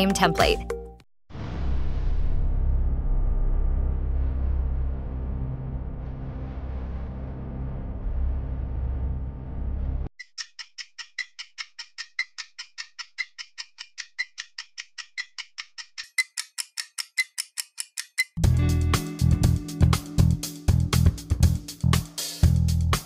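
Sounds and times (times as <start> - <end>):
low steady rumble: 1.4 - 10.1
clock-like ticking: 10.2 - 18.4
upbeat guitar music: 18.4 - 23.0.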